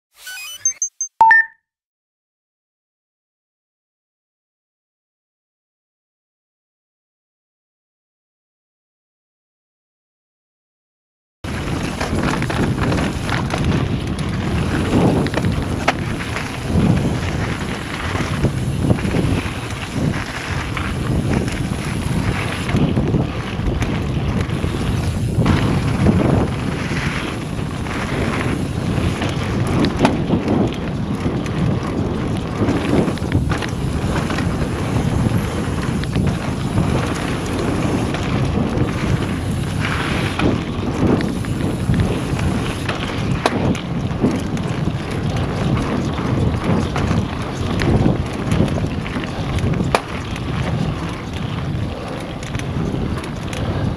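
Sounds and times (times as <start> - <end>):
bike rattling over bumps: 11.5 - 53.9
tyres rolling on gravel: 11.5 - 53.9
wind on microphone: 11.5 - 53.9.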